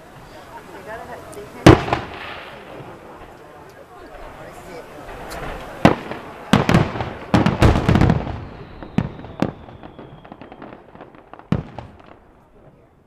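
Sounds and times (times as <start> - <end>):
small firework pops: 5.1 - 12.9.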